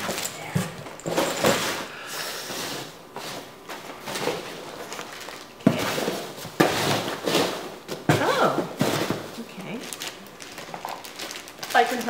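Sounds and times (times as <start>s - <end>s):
packing peanuts rustling: 3.2s - 12.0s
plastic wrapping crinkling: 3.8s - 12.0s.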